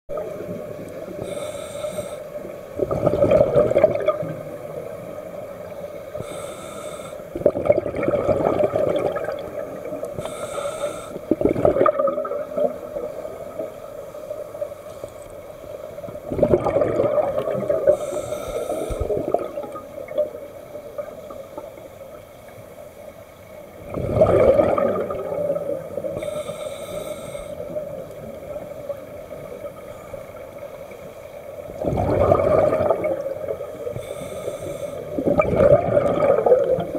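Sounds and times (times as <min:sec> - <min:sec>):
regulator inhale hiss: 0:01.1 - 0:02.7, 0:05.8 - 0:07.4, 0:10.0 - 0:11.4, 0:17.8 - 0:19.3, 0:26.0 - 0:27.8, 0:33.8 - 0:35.3
exhaled bubbles: 0:02.8 - 0:05.0, 0:07.3 - 0:10.4, 0:11.2 - 0:13.7, 0:16.1 - 0:20.4, 0:23.8 - 0:26.3, 0:31.7 - 0:34.0, 0:35.1 - 0:36.9.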